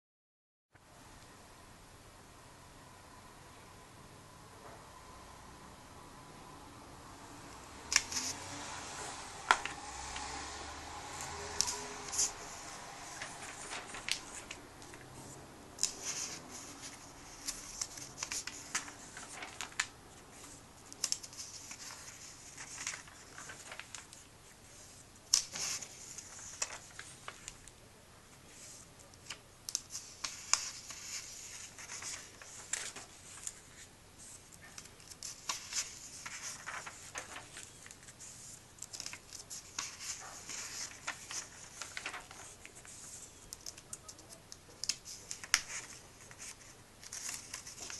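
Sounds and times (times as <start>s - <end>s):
page snapping over: 7.9s - 8.4s, 9.5s - 10.4s, 11.2s - 15.1s, 21.0s - 24.2s, 34.7s - 38.0s, 38.8s - 44.2s
paper pages rustling: 7.9s - 27.7s, 28.5s - 47.9s.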